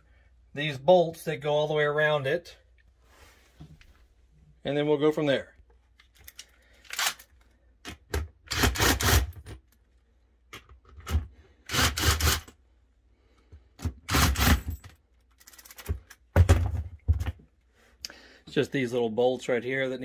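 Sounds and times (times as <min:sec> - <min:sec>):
cordless impact driver bursts: 0:08.5 - 0:09.4, 0:11.7 - 0:12.5, 0:14.1 - 0:14.7.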